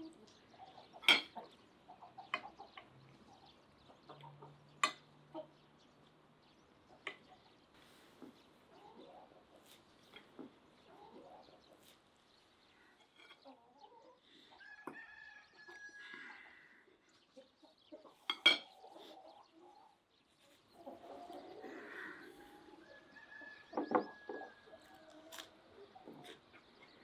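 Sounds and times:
chickens clucking: 0.0s - 27.0s
cutlery clinking on plate: 1.0s - 1.4s, 18.3s - 18.7s.

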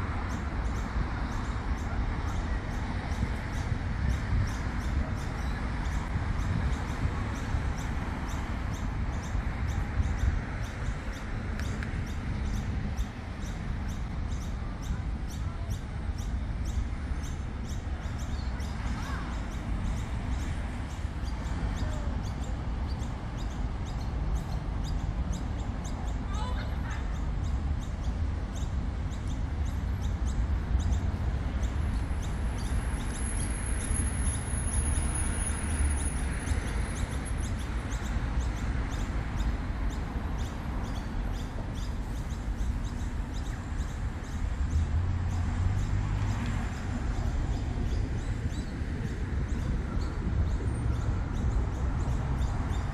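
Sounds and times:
low traffic rumble: 0.0s - 52.9s
birds chirping: 0.2s - 52.9s.

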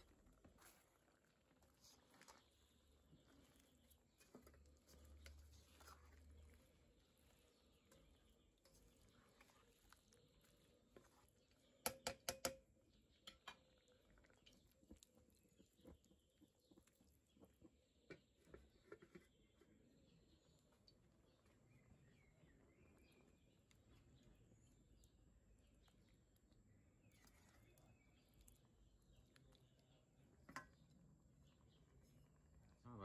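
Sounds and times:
spoon stirring in a metal pan: 0.0s - 16.7s.

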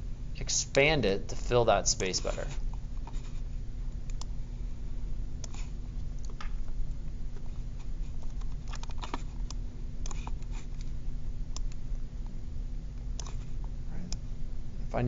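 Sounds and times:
steady low hum: 0.0s - 15.0s
computer mouse clicks: 4.0s - 4.3s, 8.1s - 10.9s, 11.5s - 11.8s, 13.2s - 13.4s.

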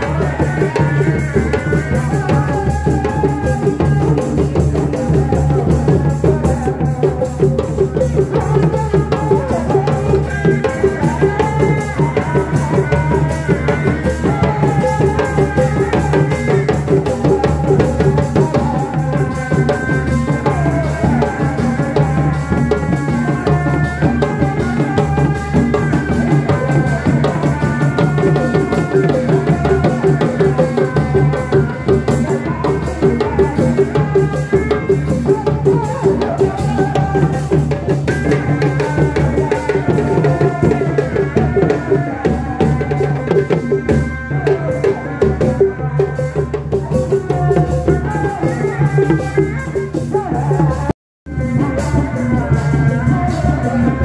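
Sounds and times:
drums beaten with sticks: 0.0s - 54.0s.

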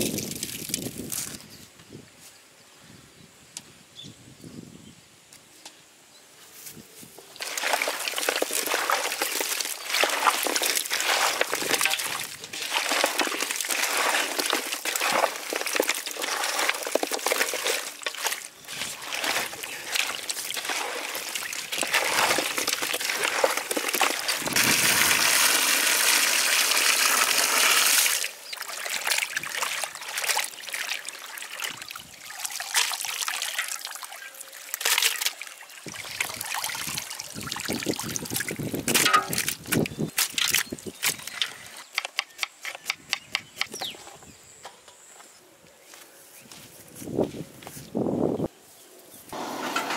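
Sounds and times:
hands squelching meat in water: 7.4s - 25.1s, 27.7s - 34.1s
water pouring: 7.4s - 39.8s.

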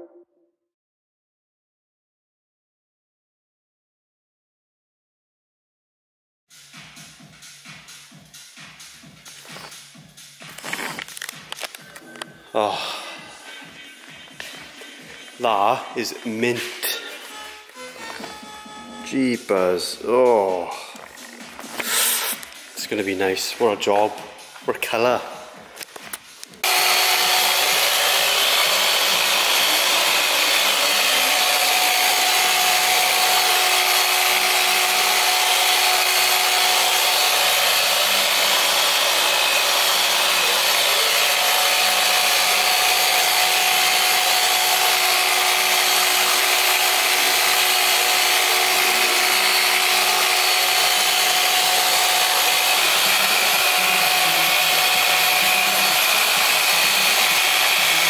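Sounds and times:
machine polisher motor hum: 14.0s - 19.5s, 20.9s - 22.5s, 26.6s - 58.0s
polishing pad hiss: 21.6s - 22.4s.

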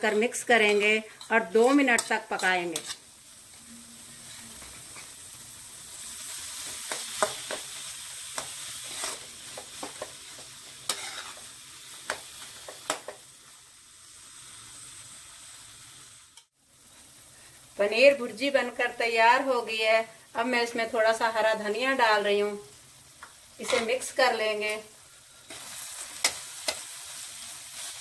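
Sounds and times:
spatula scraping pan: 0.0s - 3.6s, 8.4s - 11.5s, 23.6s - 24.1s
food sizzling in metal pan: 0.0s - 28.0s.

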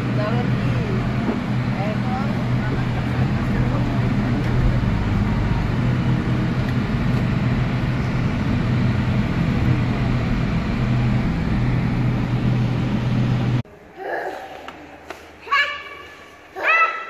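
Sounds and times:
vehicle engine hum and road noise: 0.0s - 13.6s.

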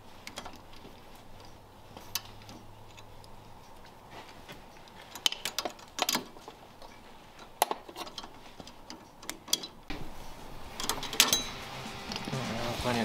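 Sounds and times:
metal-on-metal clinks: 10.7s - 12.3s.

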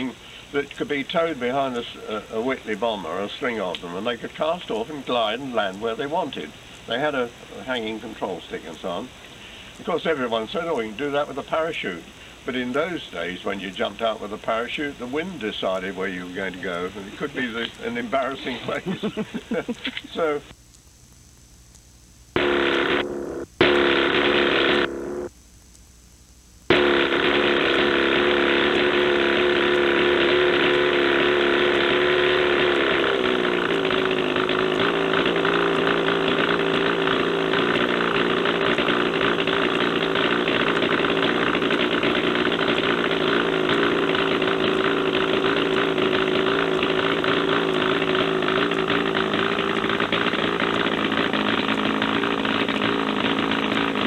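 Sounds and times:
small piston engine idling: 22.4s - 25.3s, 26.7s - 54.0s.

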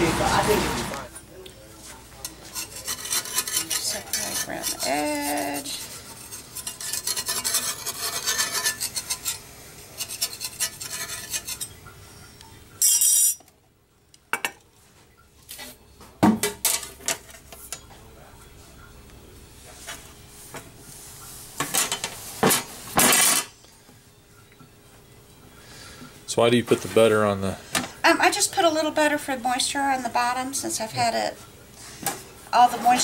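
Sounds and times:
metal spatula scraping skillet: 2.2s - 11.8s, 32.6s - 33.0s.

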